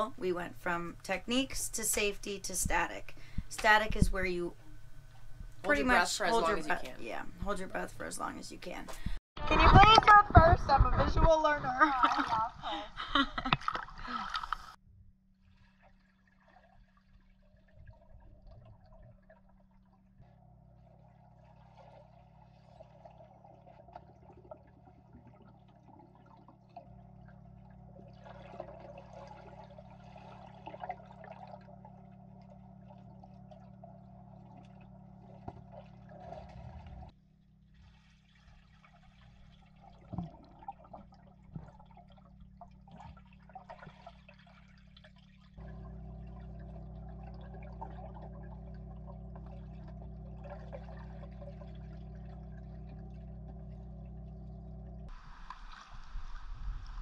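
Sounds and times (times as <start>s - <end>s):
steady low hum: 0.0s - 13.4s, 17.8s - 37.8s, 39.3s - 55.3s
muffled underwater water swishing: 15.4s - 37.1s, 37.8s - 57.0s.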